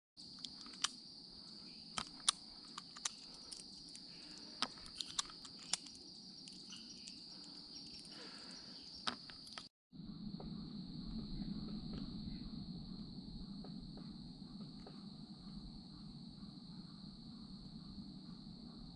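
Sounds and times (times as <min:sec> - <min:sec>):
insects trilling: 0:00.2 - 0:18.9
sharp clicks: 0:00.4 - 0:01.0, 0:01.9 - 0:08.3.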